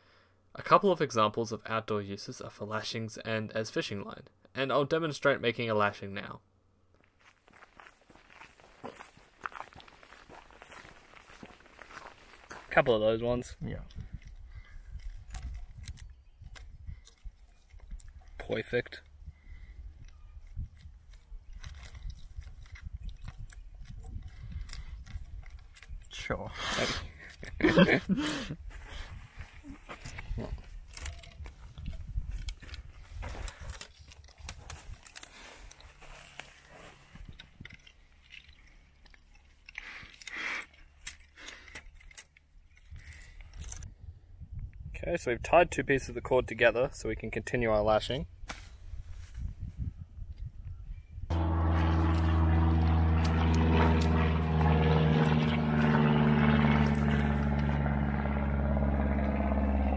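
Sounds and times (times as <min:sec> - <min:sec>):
plastic cord scraping on bark: 0:28.9 - 0:43.8
engine drone: 0:51.3 - 0:59.9.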